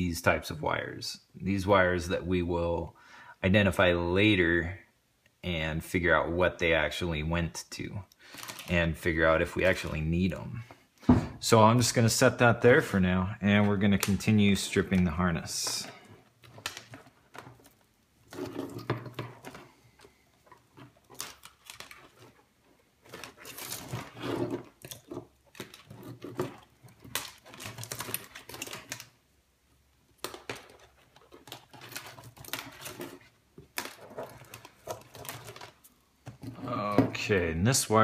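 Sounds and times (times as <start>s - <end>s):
wires rustling and scraping: 8.3s - 29.2s, 30.1s - 38.0s.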